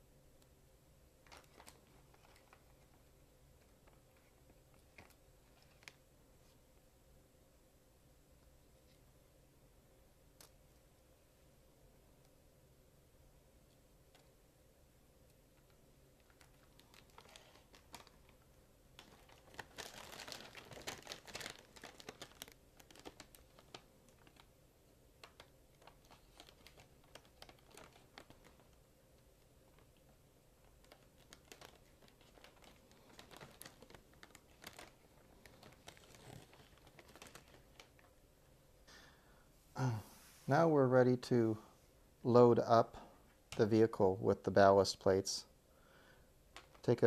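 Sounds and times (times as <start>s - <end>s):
thin balloon crinkling: 1.2s - 6.6s, 15.3s - 24.6s, 25.2s - 38.3s, 46.5s - 47.0s.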